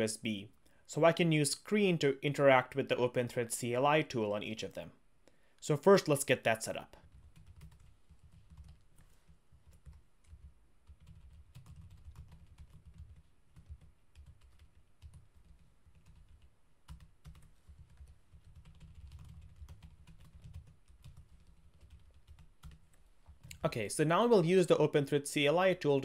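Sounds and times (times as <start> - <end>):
typing on a keyboard: 7.0 - 23.6.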